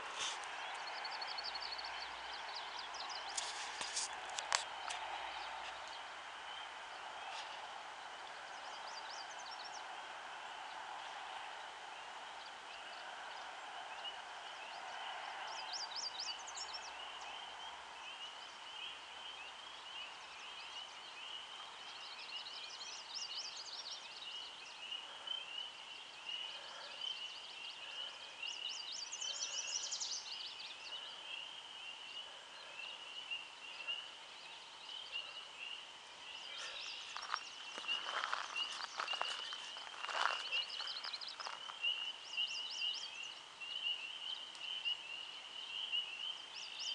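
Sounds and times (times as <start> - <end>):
frogs peeping chorus: 12.3 - 46.9.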